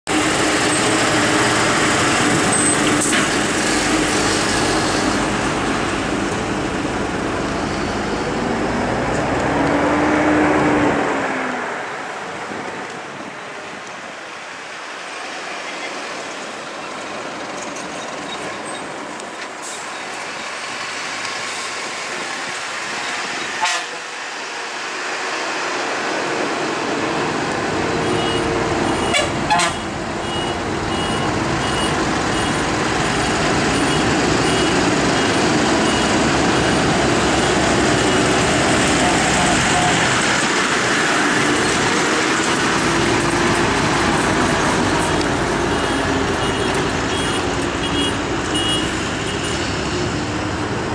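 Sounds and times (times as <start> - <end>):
truck diesel engines labouring: 0.0 - 50.9
horn toots: 23.6 - 24.1, 28.0 - 32.6.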